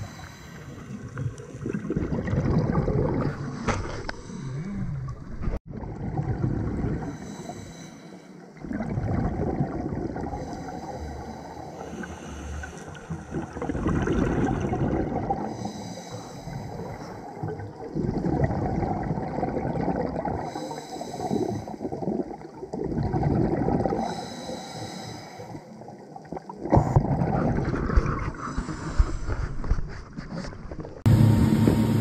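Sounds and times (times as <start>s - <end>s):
diver breathing through regulator: 0.0s - 1.1s, 7.0s - 8.4s, 10.3s - 13.2s, 15.4s - 17.3s, 20.4s - 21.9s, 24.0s - 25.8s, 28.3s - 29.7s
bubbles rumbling underwater: 1.1s - 3.6s, 4.8s - 7.2s, 8.6s - 10.5s, 13.0s - 15.5s, 16.8s - 20.5s, 21.8s - 24.1s, 25.8s - 28.3s.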